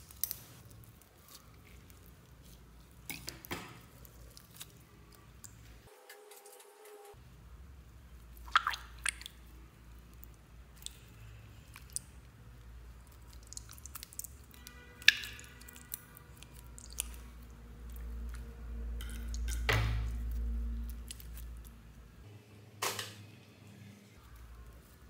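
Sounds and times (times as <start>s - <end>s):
wet squishing: 0.0s - 5.7s, 8.2s - 22.1s.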